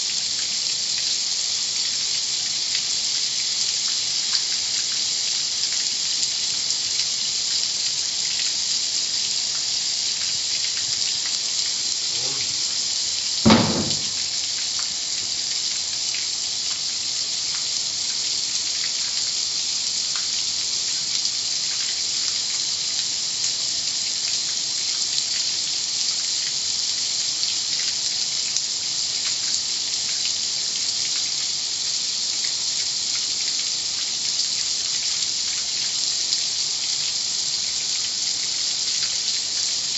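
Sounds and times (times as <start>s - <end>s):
water spraying hiss: 8.6s - 15.2s
loud thump: 13.5s - 14.2s.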